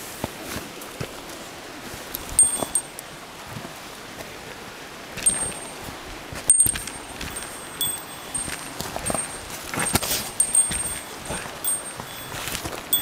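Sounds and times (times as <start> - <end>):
steady background hiss: 0.0 - 13.0
small bell jingling: 2.4 - 3.0, 5.2 - 5.8, 6.5 - 13.0.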